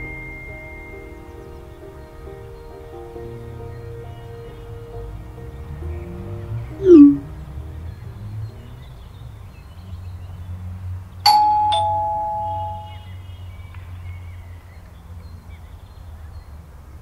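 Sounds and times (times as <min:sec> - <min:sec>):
two-note doorbell chime: 0:00.0 - 0:01.6, 0:11.3 - 0:13.1.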